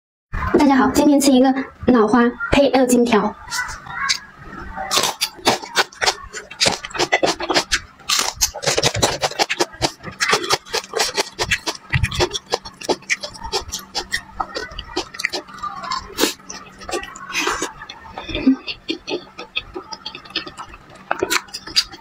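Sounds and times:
crunching and chewing chili pepper: 4.9 - 22.0
wet mouth sounds: 4.9 - 22.0.

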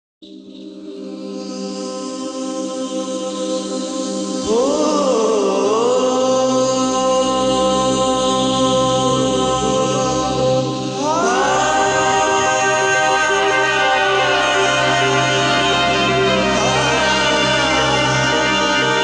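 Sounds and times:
wordless singing: 0.3 - 19.0
steady drone: 7.1 - 19.0.

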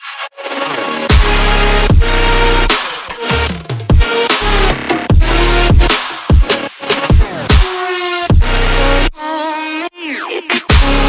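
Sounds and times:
electronic dance music: 0.0 - 9.1, 9.7 - 11.0
deep falling bass-drum hits: 1.1 - 2.2.

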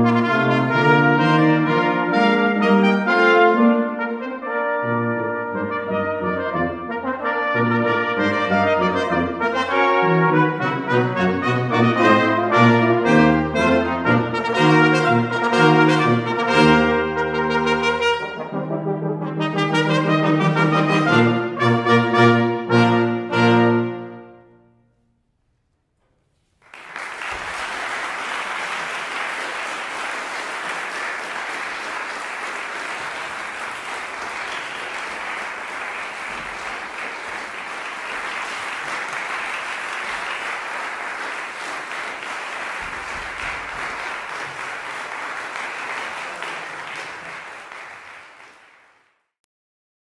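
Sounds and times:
brass chord ringing: 0.0 - 25.2
audience applauding: 26.6 - 49.3.

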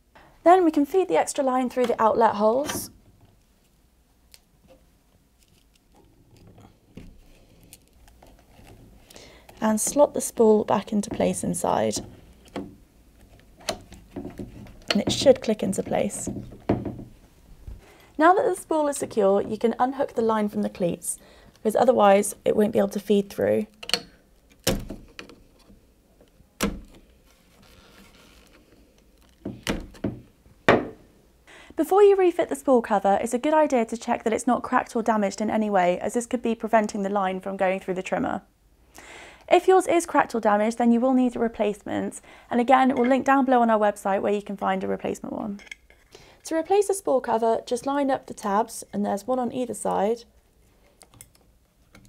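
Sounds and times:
soft rustling: 27.0 - 29.4.

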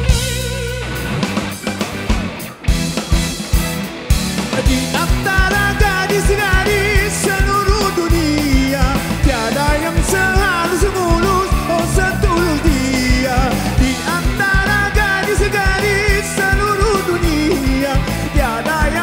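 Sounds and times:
guitar: 0.0 - 19.0
steady drum beat: 0.0 - 19.0
man singing: 4.5 - 19.0.

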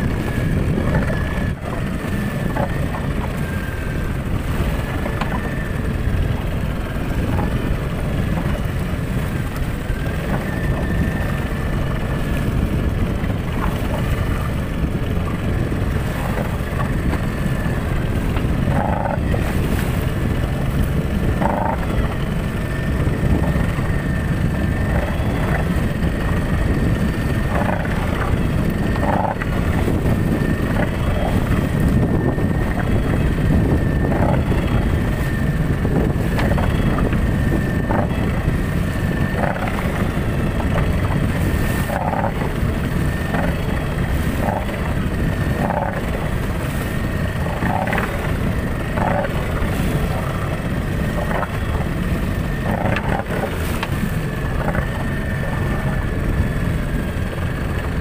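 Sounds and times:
outboard motor running: 0.0 - 58.0
wind: 0.0 - 58.0.

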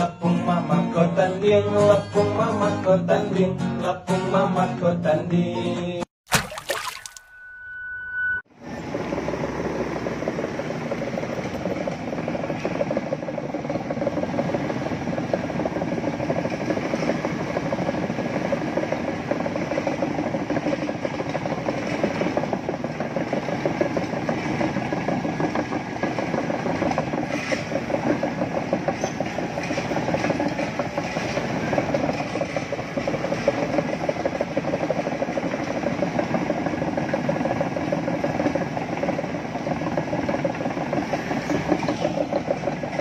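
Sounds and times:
diesel engine running: 8.6 - 43.0
steel tracks clanking: 10.7 - 43.0.

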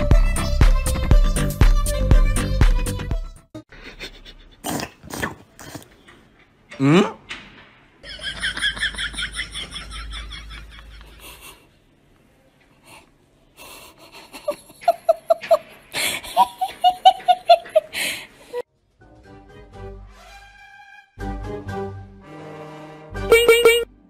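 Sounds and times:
person laughing in bursts: 8.0 - 11.6, 13.8 - 18.2.

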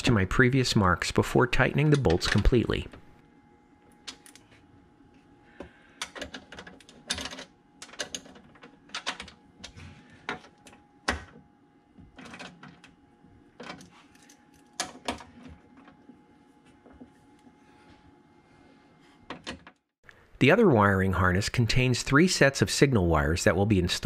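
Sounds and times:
latch parts clicking and clacking: 6.0 - 11.4, 12.1 - 13.0.

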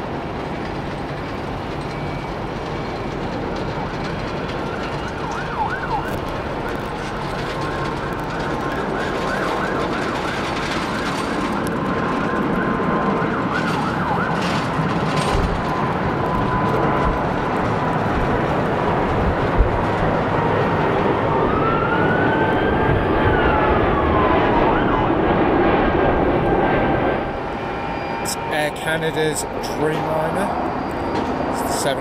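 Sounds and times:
aircraft rumble: 0.0 - 32.0
emergency vehicle siren: 0.3 - 32.0.

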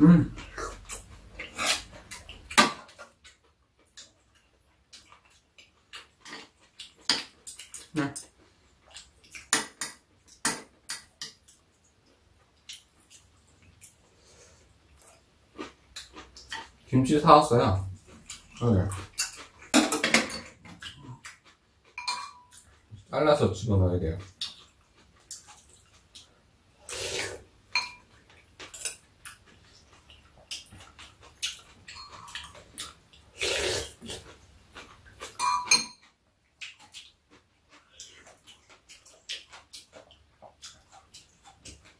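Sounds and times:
utensils clinking against dishes: 22.0 - 22.7, 27.7 - 28.1, 31.9 - 32.6, 35.4 - 36.0
slurping soup: 26.8 - 27.5, 33.3 - 34.4.

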